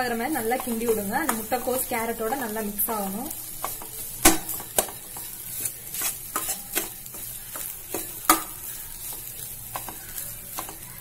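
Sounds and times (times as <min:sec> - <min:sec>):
faint sizzle: 0:00.0 - 0:11.0
metal spatula scraping a pan: 0:00.0 - 0:11.0.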